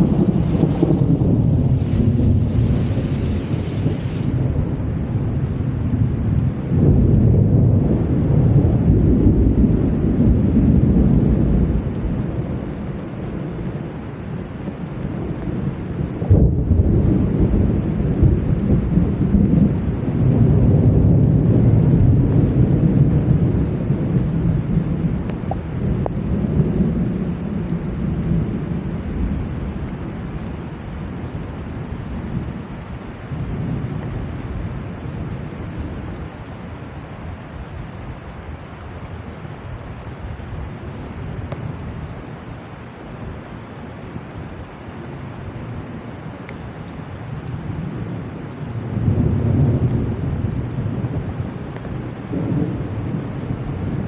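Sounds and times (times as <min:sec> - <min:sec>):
sharp thunderclap: 0:00.0 - 0:04.8, 0:16.2 - 0:23.7, 0:48.9 - 0:54.0
rolling thunder: 0:00.0 - 0:13.8, 0:14.8 - 0:32.7, 0:47.5 - 0:54.0
steady rain: 0:00.0 - 0:54.0.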